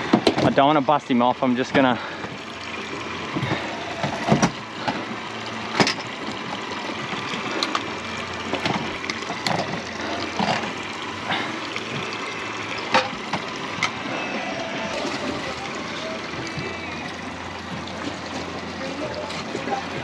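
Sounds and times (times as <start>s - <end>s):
outboard motor idling: 0.0s - 20.0s
water sloshing against hull: 0.0s - 20.0s.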